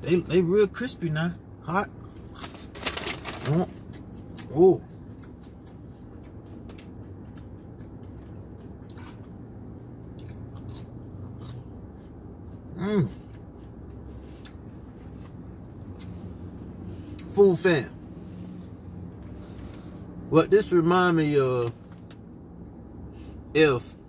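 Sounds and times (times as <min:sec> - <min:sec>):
person chewing crispy food: 0:01.9 - 0:17.3.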